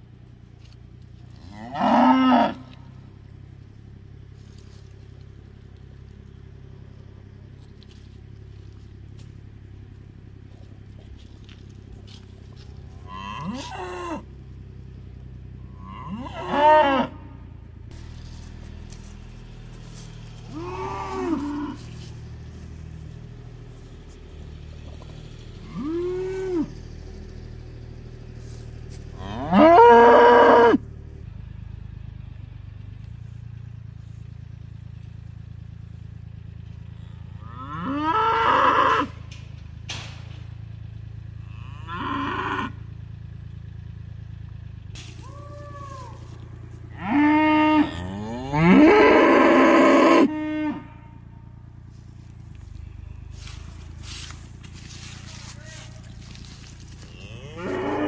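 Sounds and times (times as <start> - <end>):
steady low hum: 0.0 - 38.0, 39.0 - 58.0
cattle mooing: 1.3 - 3.1, 11.4 - 14.3, 15.7 - 17.4, 20.3 - 22.2, 25.6 - 27.2, 29.0 - 30.8, 36.9 - 39.3, 41.4 - 42.8, 45.3 - 51.3, 56.2 - 58.0.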